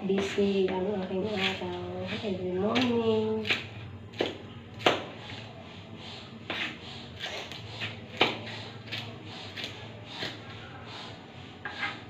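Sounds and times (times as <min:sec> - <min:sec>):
knife chopping on cutting board: 0:00.2 - 0:05.2, 0:06.5 - 0:10.4.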